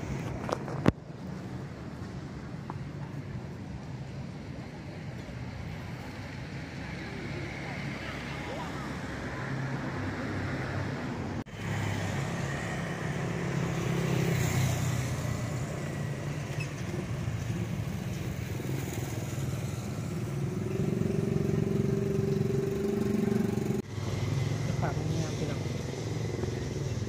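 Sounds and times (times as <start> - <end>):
car engines passing: 0.0 - 27.0.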